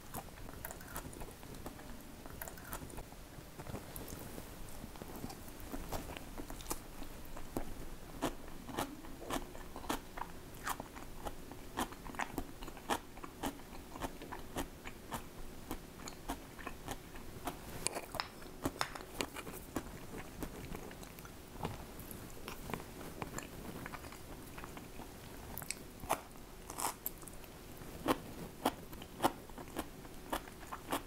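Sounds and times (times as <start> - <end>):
faint steady hum: 0.0 - 31.0
person chewing crunchy food: 8.2 - 21.4, 22.3 - 31.0.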